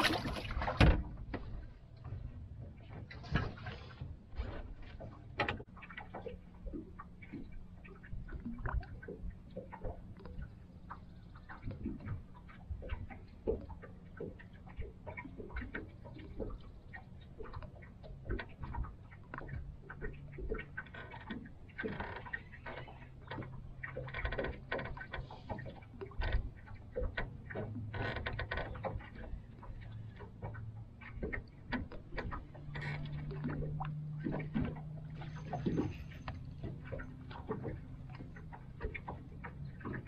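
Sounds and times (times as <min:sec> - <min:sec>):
small waves lapping against hull: 0:00.0 - 0:40.0.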